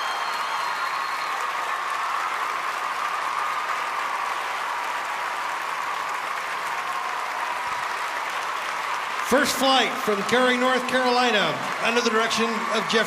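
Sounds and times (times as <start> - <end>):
crowd whistle: 0.0 - 2.5
audience applauding: 0.0 - 13.0.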